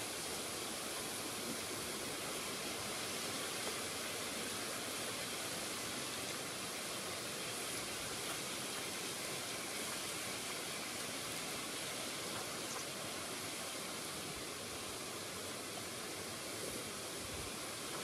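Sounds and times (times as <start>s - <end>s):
rippling river water: 0.0s - 18.0s
wind hiss: 0.0s - 18.0s.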